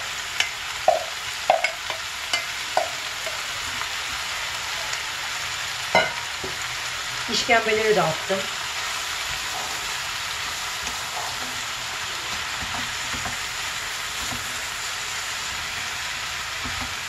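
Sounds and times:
food sizzling in hot oil: 0.0s - 17.0s
wooden spoon knocking pan: 0.4s - 3.4s, 6.0s - 6.6s.

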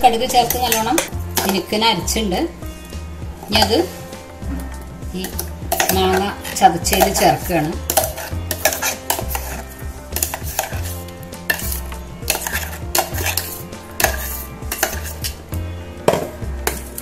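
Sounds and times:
spoon scraping a steel jar: 0.5s - 1.7s, 5.2s - 15.4s.

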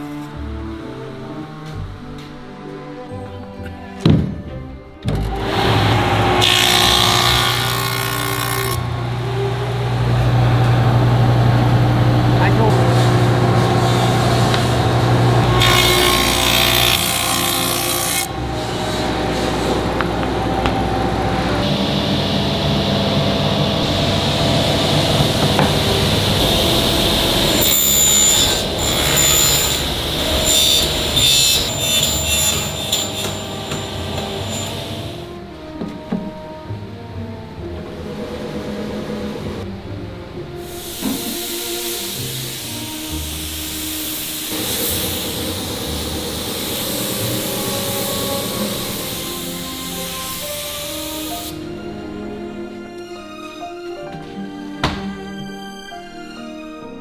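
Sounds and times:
cutter cutting wooden board: 5.2s - 9.5s, 12.6s - 21.0s, 25.2s - 35.2s
machine motor humming: 5.3s - 31.7s.

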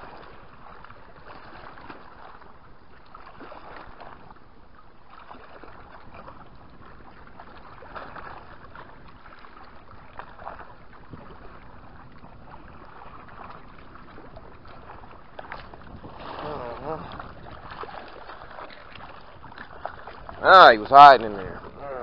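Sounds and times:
waves lapping on rocks: 5.1s - 22.0s.

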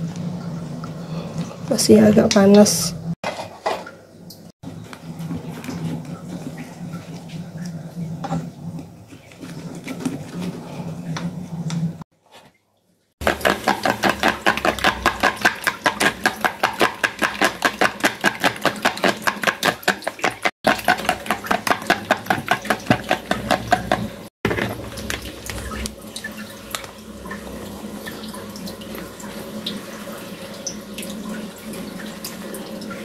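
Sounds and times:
spoon beating egg in plastic bowl: 13.2s - 25.9s.

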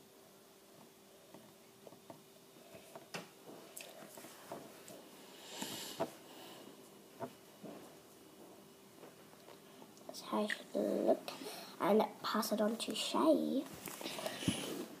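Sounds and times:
faint steady hum: 0.0s - 15.0s
breathy hiss: 5.1s - 6.9s, 10.4s - 11.9s, 13.9s - 15.0s.

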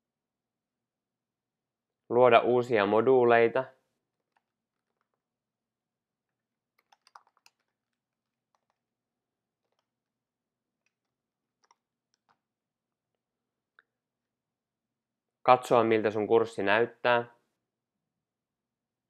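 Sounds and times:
faint keyboard keystrokes: 6.3s - 8.8s, 10.8s - 12.4s.

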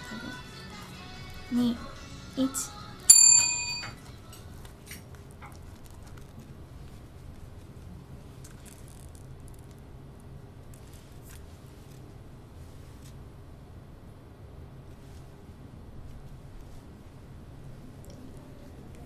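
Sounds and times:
steady low hum: 0.0s - 19.0s
paper book rustling and clicking: 4.6s - 9.9s, 10.7s - 12.1s.

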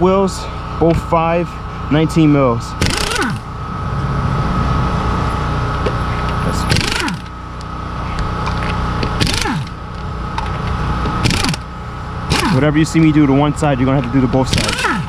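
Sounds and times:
tool whine stopping: 0.0s - 15.0s
impact wrench hammering: 2.8s - 3.5s, 6.7s - 7.4s, 9.1s - 9.8s, 11.0s - 11.7s, 12.3s - 12.7s, 14.5s - 15.0s.

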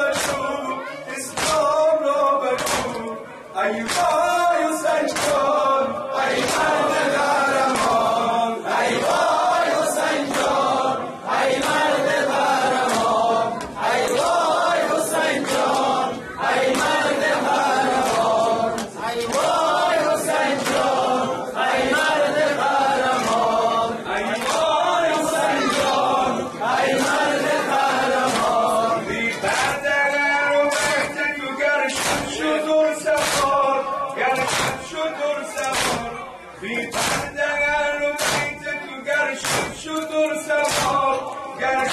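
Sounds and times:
man singing lament into microphone: 0.0s - 6.0s
congregation chanting: 0.0s - 41.9s
chest-beating slaps: 0.1s - 0.6s, 1.3s - 1.7s, 2.6s - 3.1s, 3.8s - 4.2s, 5.1s - 5.5s, 31.9s - 32.4s, 34.3s - 34.9s, 35.6s - 36.2s, 36.9s - 37.4s, 38.2s - 38.7s, 39.4s - 40.0s, 40.6s - 41.2s.

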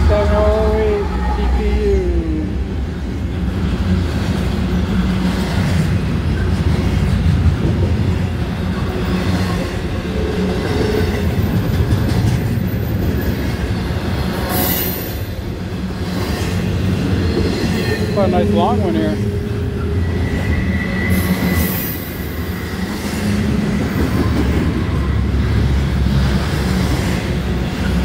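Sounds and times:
freight train rumbling past: 0.0s - 28.0s.

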